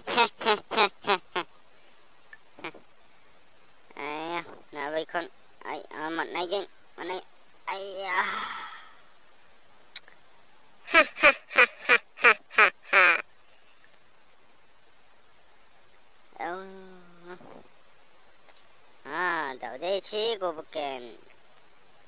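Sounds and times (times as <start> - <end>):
crickets chirring: 0.0 - 22.0
man laughing: 10.9 - 12.0.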